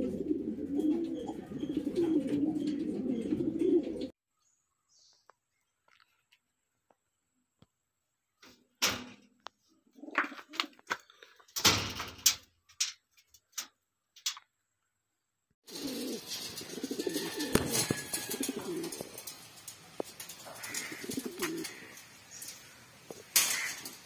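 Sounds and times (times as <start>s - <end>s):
pigeons cooing: 0.0s - 4.1s, 15.7s - 24.0s
background hiss: 15.7s - 24.0s.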